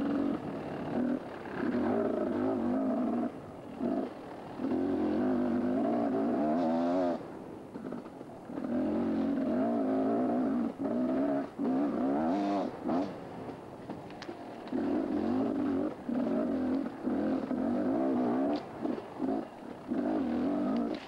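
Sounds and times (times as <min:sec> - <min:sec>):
small engine revving in bursts: 0:00.0 - 0:07.2, 0:07.8 - 0:13.2.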